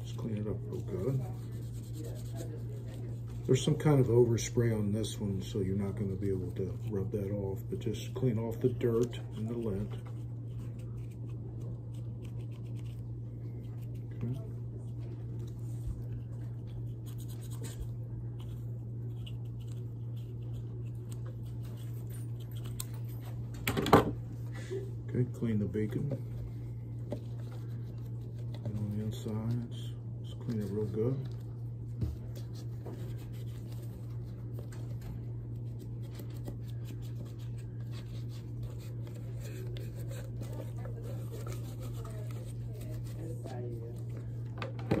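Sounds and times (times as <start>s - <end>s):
steady low hum: 0.0s - 45.0s
scratchy handling sounds: 8.4s - 23.5s, 30.4s - 44.4s
wipe rubbing on plastic: 35.2s - 43.7s.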